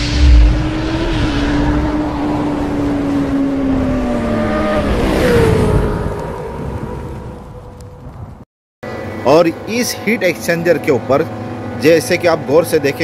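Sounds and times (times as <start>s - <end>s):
deep boom: 0.0s - 2.5s
whoosh: 0.0s - 6.1s.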